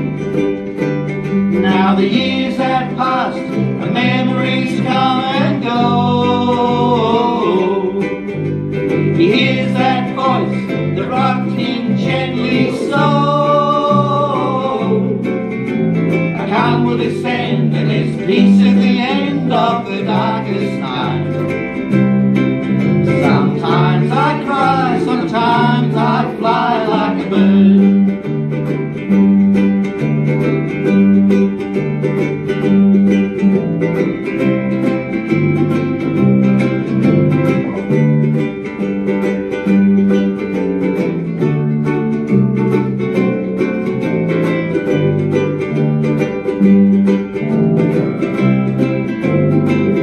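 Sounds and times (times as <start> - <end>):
ukuleles strummed: 0.0 - 50.0
person singing: 1.5 - 8.5, 9.1 - 15.5, 16.3 - 21.6, 23.0 - 28.3.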